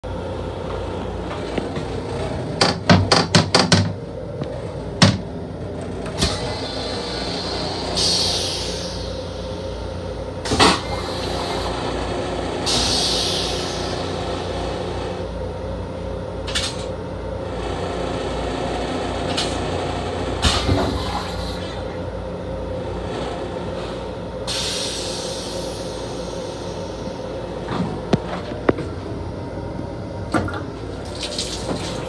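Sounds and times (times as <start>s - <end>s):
moving train rumble and hum: 0.0s - 32.0s
toilet flush knocks: 2.6s - 4.0s, 5.0s - 5.3s
toilet rinse hissing: 6.2s - 9.5s, 10.5s - 14.6s, 24.5s - 27.1s.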